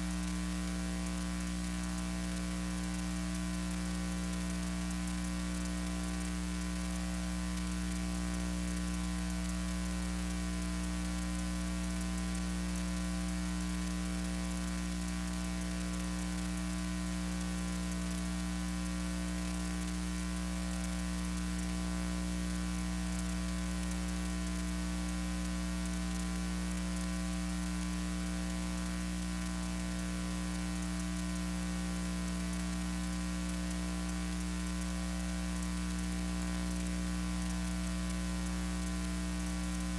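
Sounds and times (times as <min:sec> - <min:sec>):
electrical mains hum: 0:00.0 - 0:39.9.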